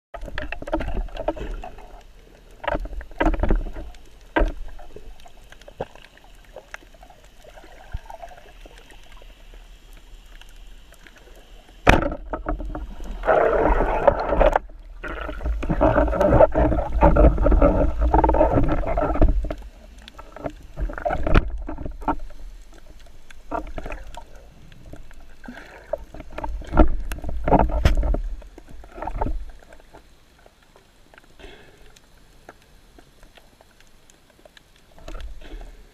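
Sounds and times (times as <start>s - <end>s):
underwater rushing and gurgling: 0.1s - 35.9s
sharp clicks and knocks: 11.8s - 12.9s, 26.1s - 29.4s.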